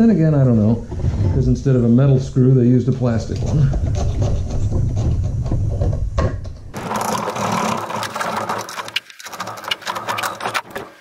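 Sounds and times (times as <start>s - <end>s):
plastic housing rubbing and knocking: 3.3s - 11.0s.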